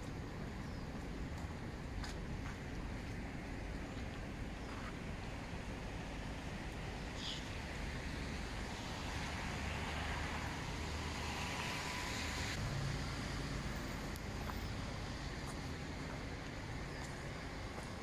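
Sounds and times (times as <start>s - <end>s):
distant traffic hum: 0.0s - 18.0s
wind: 0.0s - 18.0s.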